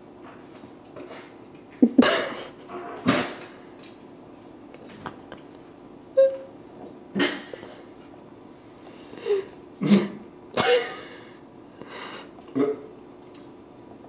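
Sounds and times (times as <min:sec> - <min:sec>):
man coughing and gagging: 0:01.9 - 0:03.3, 0:09.8 - 0:11.2.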